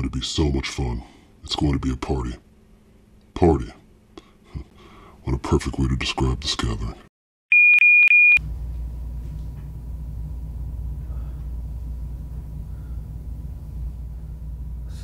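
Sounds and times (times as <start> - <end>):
low rumbling hum: 8.4 - 15.0.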